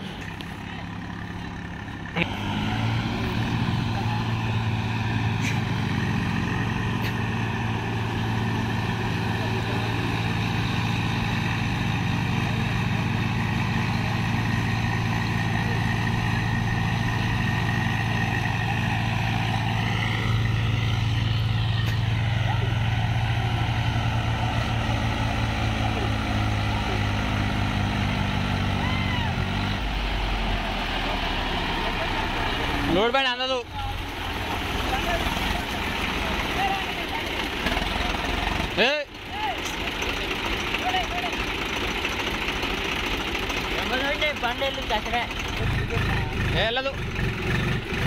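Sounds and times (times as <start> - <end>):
tractor diesel engines running: 0.0 - 48.0.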